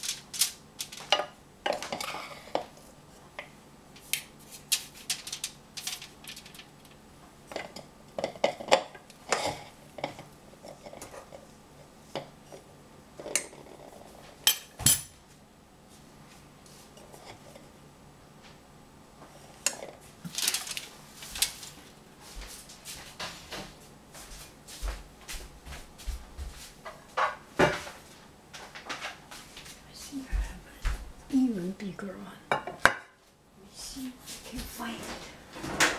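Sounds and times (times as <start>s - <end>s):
foil rustling: 0.0s - 1.2s, 4.4s - 7.0s, 20.0s - 23.2s.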